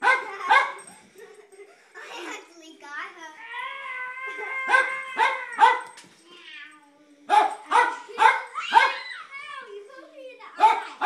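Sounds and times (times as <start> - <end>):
dog barking excitedly: 0.0 - 0.9, 4.7 - 6.0, 7.3 - 9.1, 10.6 - 11.0.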